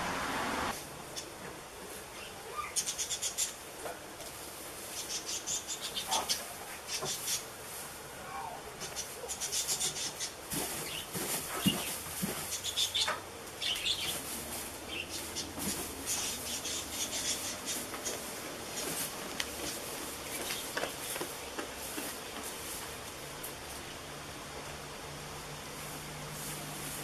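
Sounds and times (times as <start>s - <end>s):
hay rustling and crackling: 10.3s - 12.8s, 13.4s - 23.9s, 25.6s - 27.0s.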